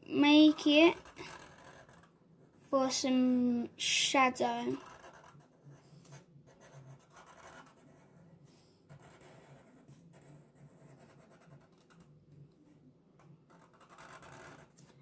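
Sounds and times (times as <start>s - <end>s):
marker scratching on paper: 0.4s - 2.1s, 4.5s - 12.2s, 13.2s - 14.9s.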